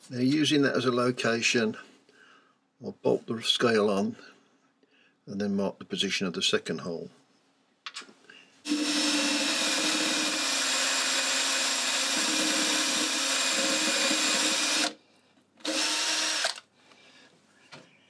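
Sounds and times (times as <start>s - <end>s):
cordless drill drilling into metal: 8.7s - 15.0s, 15.6s - 16.7s.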